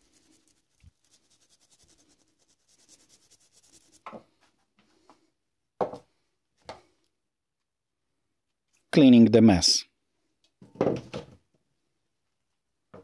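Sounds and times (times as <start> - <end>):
rapid rubbing on metal shaft: 0.0 - 4.0.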